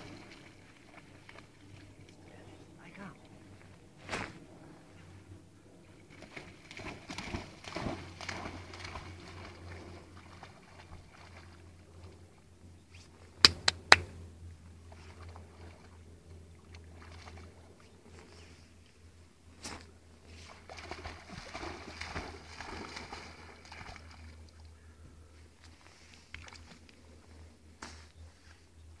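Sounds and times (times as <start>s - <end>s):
low steady hum: 0.0s - 29.0s
dog splashing in water: 6.1s - 11.6s, 20.4s - 24.4s.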